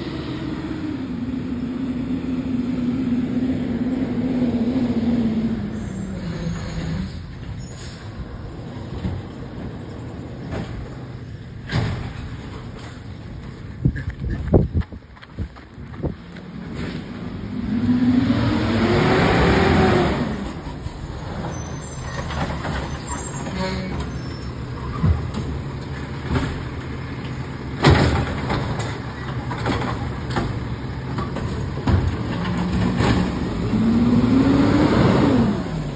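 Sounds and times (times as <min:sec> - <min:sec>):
truck engine revving: 0:00.0 - 0:07.5, 0:16.4 - 0:35.9.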